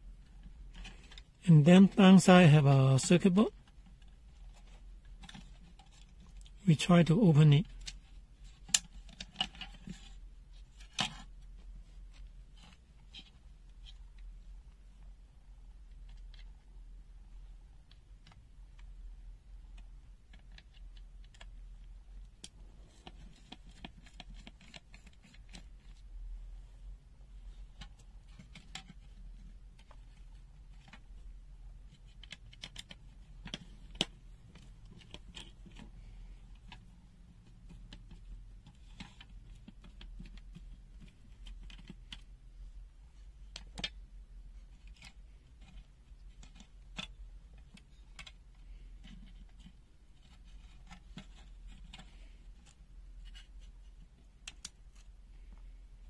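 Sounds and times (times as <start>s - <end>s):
screwdriver and plastic parts clicking: 37.6s - 42.3s.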